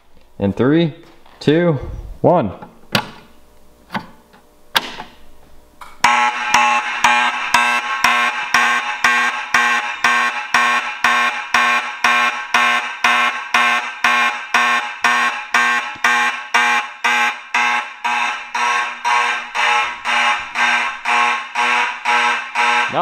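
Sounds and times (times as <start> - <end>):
fire alarm horn blasts: 6.0 - 23.0.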